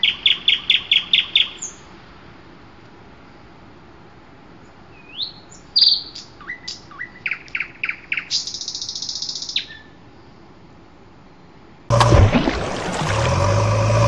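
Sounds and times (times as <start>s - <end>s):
bird singing: 0.0s - 1.9s, 4.9s - 10.0s.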